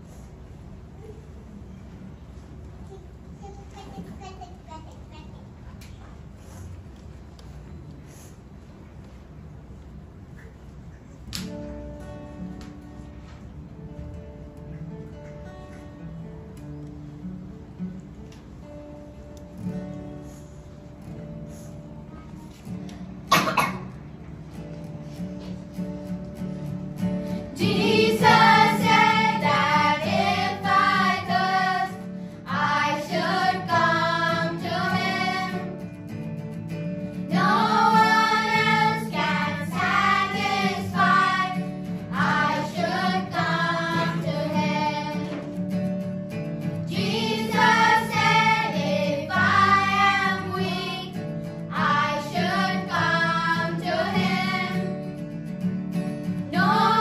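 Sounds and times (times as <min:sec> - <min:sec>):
children singing: 0:27.5 - 0:35.8, 0:37.3 - 0:45.4, 0:46.9 - 0:55.1, 0:56.5 - 0:57.0.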